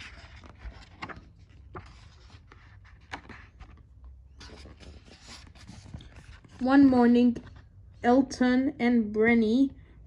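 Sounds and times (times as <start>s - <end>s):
paper pages rustling: 0.0s - 7.7s.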